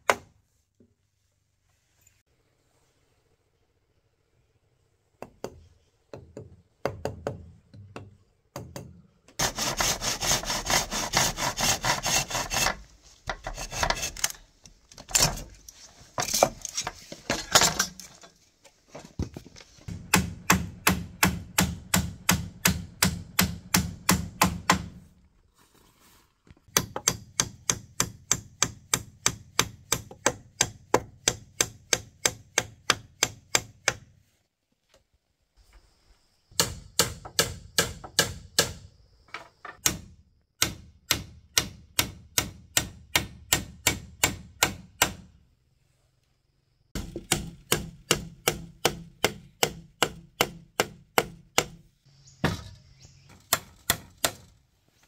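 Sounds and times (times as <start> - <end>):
hammer driving nails into wood: 26.7 - 34.1, 36.6 - 38.8, 39.8 - 45.3, 47.0 - 51.8.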